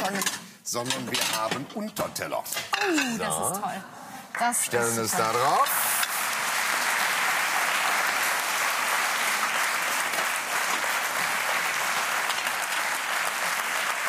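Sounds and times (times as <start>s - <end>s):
audience applauding: 5.2s - 14.0s.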